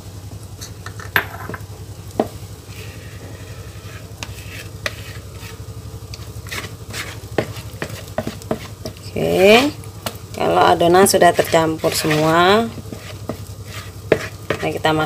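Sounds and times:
steady low hum: 0.0 - 15.0
spatula scraping batter in bowl: 2.7 - 9.8, 10.4 - 15.0
spatula knocking against bowl: 14.1 - 14.7.

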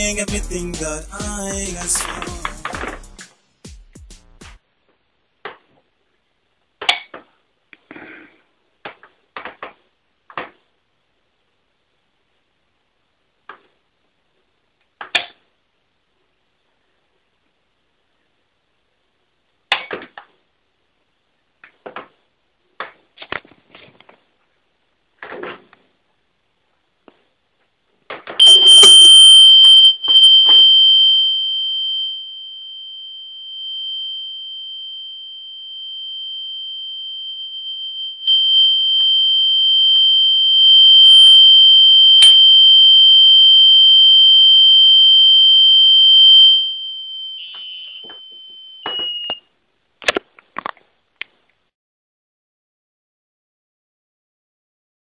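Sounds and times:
piezo buzzer alarm tone: 28.4 - 32.6, 34.1 - 49.4.

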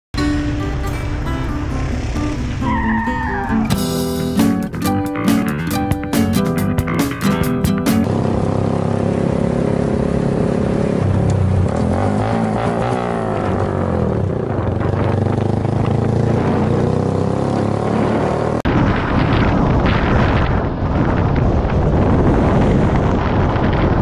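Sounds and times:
motorcycle engine: 0.2 - 24.0
wind rushing over microphone: 8.1 - 24.0.

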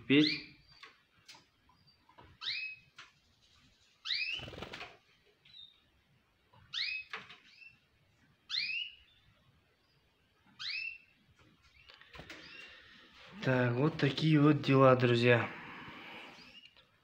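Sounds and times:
canaries calling: 0.1 - 1.0, 1.7 - 3.0, 4.0 - 4.7, 6.6 - 13.2, 15.7 - 16.8.

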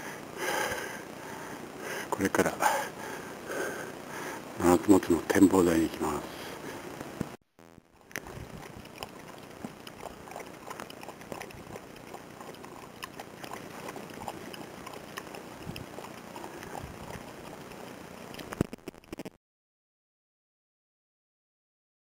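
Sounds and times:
dog lapping water from metal cup: 8.4 - 17.5.

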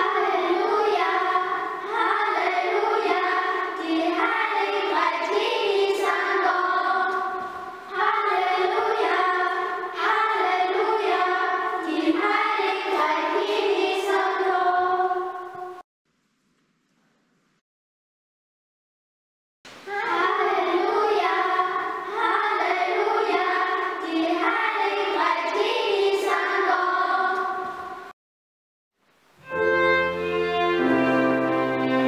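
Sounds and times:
children singing together: 0.0 - 15.8, 19.9 - 28.1.

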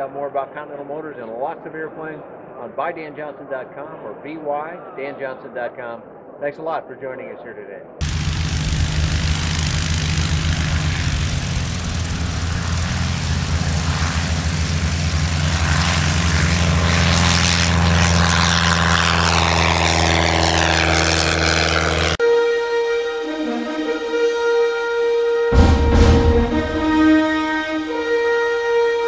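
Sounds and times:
propeller plane engine drone: 8.0 - 29.0.

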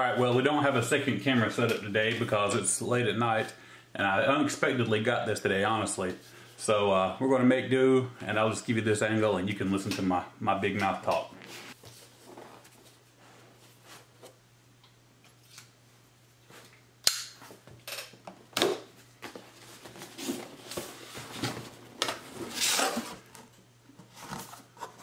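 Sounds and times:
cardboard scraping and rustling: 19.2 - 23.4, 24.0 - 25.0.

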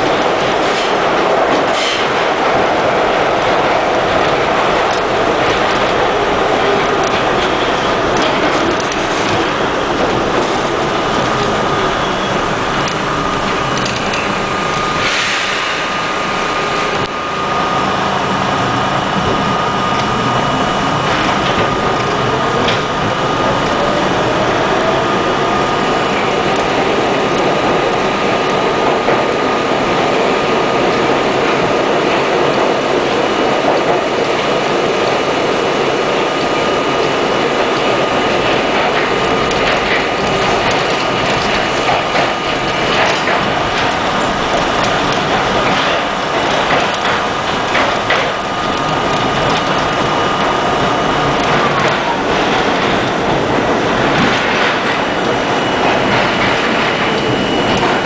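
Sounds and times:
clacks over rail joints: 0.0 - 14.4, 36.4 - 58.0
constant whine: 0.0 - 58.0
rumble of wheels on rail: 0.0 - 58.0.

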